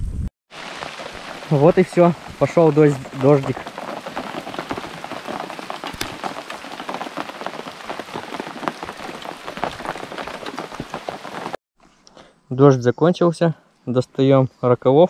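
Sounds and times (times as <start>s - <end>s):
rain drops ticking: 0.5s - 11.6s.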